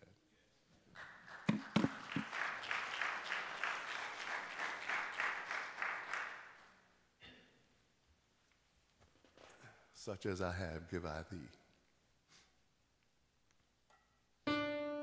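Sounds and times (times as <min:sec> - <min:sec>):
congregation applauding: 0:00.9 - 0:06.9.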